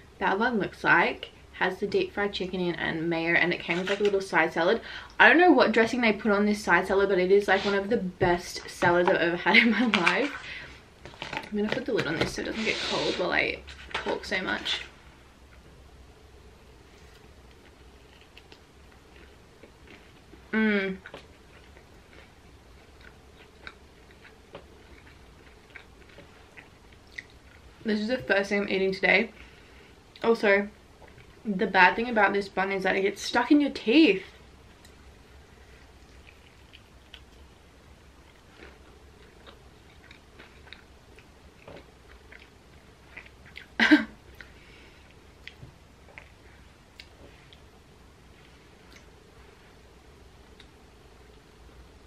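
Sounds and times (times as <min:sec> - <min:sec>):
low steady hum: 0:00.0 - 0:52.0
person chewing with wet smacks: 0:17.5 - 0:27.7, 0:35.8 - 0:37.6, 0:38.2 - 0:47.7, 0:48.4 - 0:49.2.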